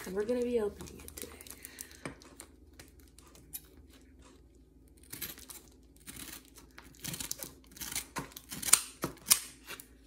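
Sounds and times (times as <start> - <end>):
scissors cutting plastic bag: 5.0 - 9.9.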